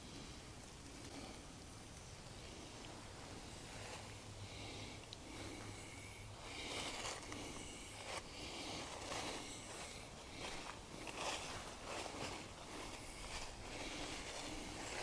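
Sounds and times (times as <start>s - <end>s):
footsteps on dry leaves: 6.4s - 15.0s.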